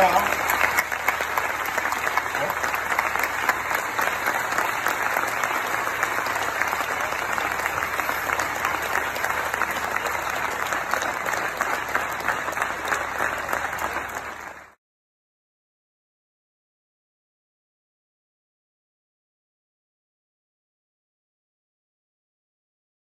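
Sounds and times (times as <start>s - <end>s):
audience applauding: 0.0s - 14.8s.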